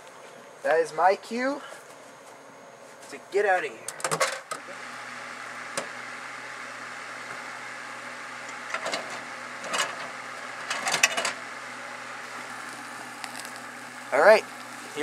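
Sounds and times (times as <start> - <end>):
low hum: 4.7 - 15.0
steady hiss: 11.4 - 15.0.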